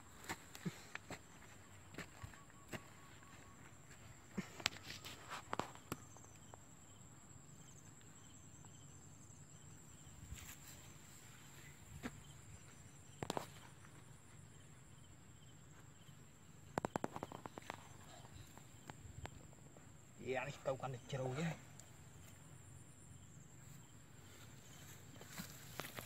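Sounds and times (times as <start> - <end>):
insects chirping: 0.0 - 26.0
hoe knocking and scraping earth: 16.7 - 19.4.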